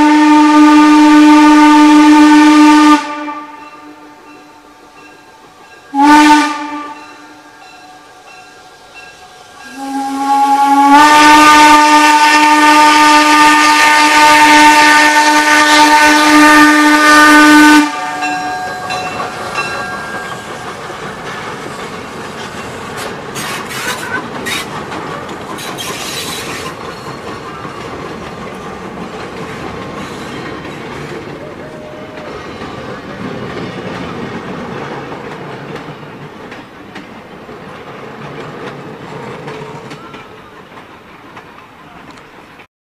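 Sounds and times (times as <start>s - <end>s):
steam whistle blast: 0.0s - 4.6s, 5.9s - 8.4s, 9.5s - 20.4s
train rumble and rail clatter: 0.0s - 42.7s.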